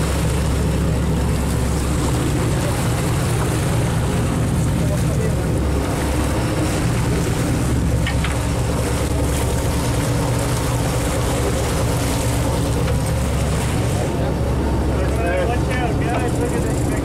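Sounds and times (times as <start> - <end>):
boat engine humming: 0.0 - 17.0
wind and water rushing: 0.0 - 17.0.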